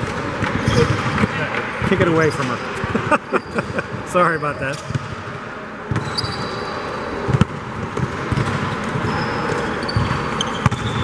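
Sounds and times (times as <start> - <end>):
shoes squeaking on court: 0.1 - 1.4, 2.1 - 5.1, 5.9 - 7.4, 8.0 - 11.0
basketball bouncing on court: 4.8 - 6.5, 7.2 - 11.0.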